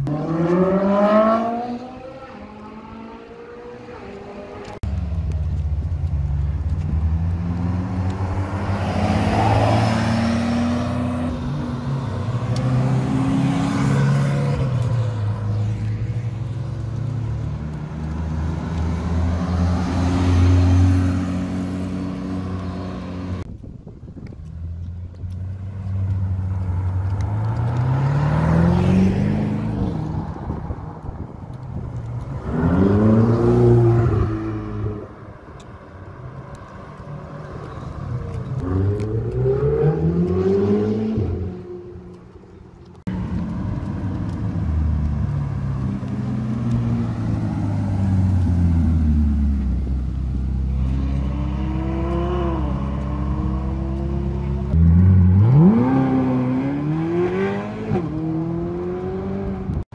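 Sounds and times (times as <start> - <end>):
second car engine revving: 37.0 - 42.3, 42.9 - 59.8
sports car engine revving: 44.4 - 59.7.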